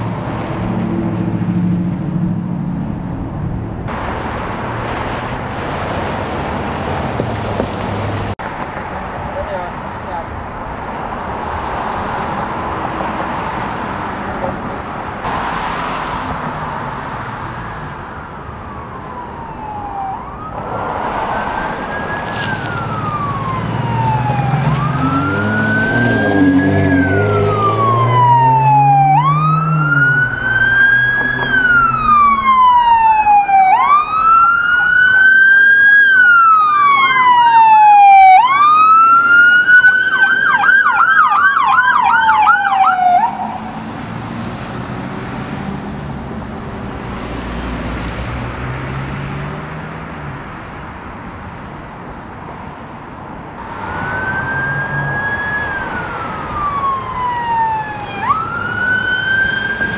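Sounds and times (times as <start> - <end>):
vehicle engine and road noise: 0.0 - 59.9
police siren wailing: 17.6 - 44.2, 53.6 - 59.9
rapid siren yelp: 18.0 - 20.8, 21.4 - 43.8, 53.6 - 59.9.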